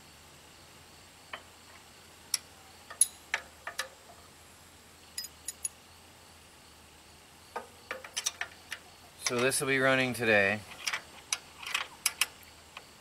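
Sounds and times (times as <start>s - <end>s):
wrench clicking on bolts: 2.3s - 4.0s, 5.2s - 5.7s, 7.9s - 9.6s, 10.7s - 12.9s.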